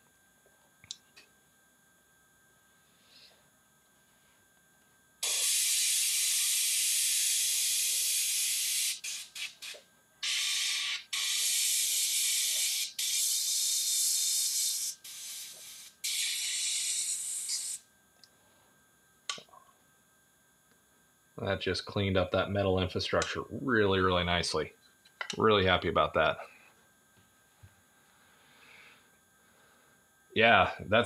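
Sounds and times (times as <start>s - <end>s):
airbrush spraying paint: 5.2s - 17.8s.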